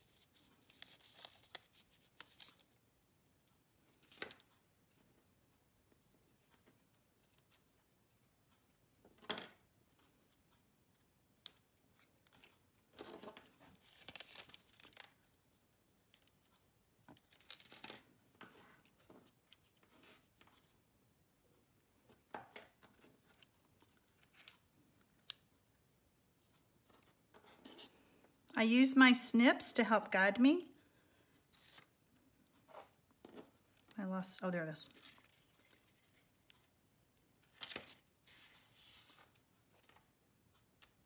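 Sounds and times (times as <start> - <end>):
paper folding and pressing: 0.0 - 2.8, 37.4 - 40.0
scratchy paper rustles: 0.0 - 2.8, 34.8 - 36.4, 37.5 - 40.0.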